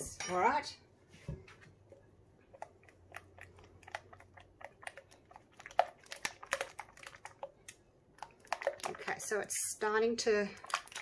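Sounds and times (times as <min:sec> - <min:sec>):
spatula stirring sticky slime: 0:01.8 - 0:11.0.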